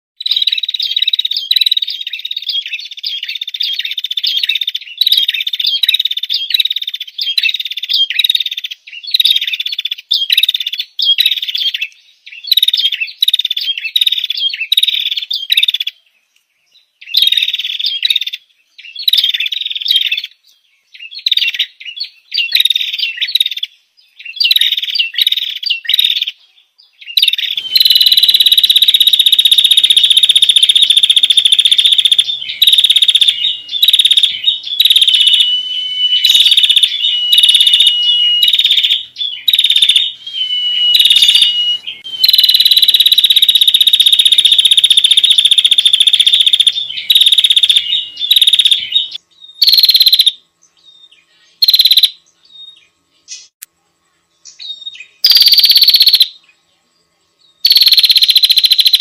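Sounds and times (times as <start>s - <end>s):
bird chirps and buzzing trills: 0.2s - 59.0s
thin steady whistled note: 27.6s - 30.7s, 31.8s - 43.6s.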